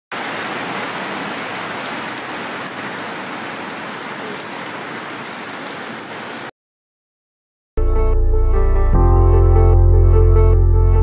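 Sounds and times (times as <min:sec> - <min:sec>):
steady rain hiss: 0:00.1 - 0:06.5.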